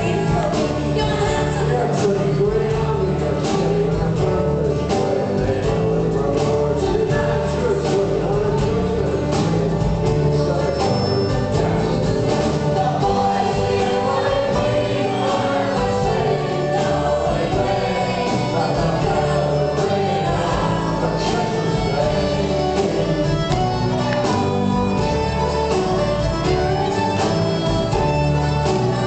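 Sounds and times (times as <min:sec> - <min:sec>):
live folk-rock band playing: 0:00.0 - 0:29.0
person singing: 0:00.0 - 0:29.0.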